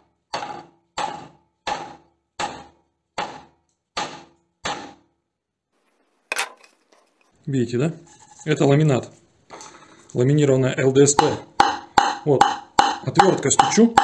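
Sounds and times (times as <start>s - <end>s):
hatchet chopping on chipboard: 0.3s - 5.0s, 11.2s - 14.0s.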